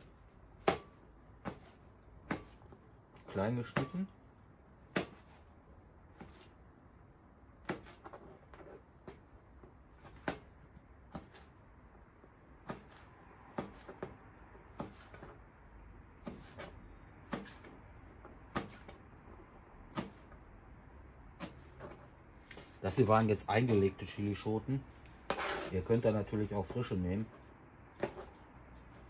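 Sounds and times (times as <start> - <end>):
knife chopping on plastic board: 0.6 - 2.8, 3.7 - 4.1, 4.9 - 5.4, 7.6 - 8.2, 10.0 - 11.5, 12.6 - 15.4, 16.2 - 19.0, 19.9 - 20.4, 21.4 - 22.0, 28.0 - 28.4.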